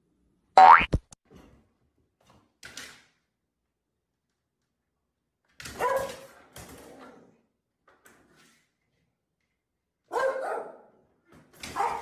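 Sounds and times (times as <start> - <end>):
small dog barking: 10.1 - 10.9, 11.8 - 12.0.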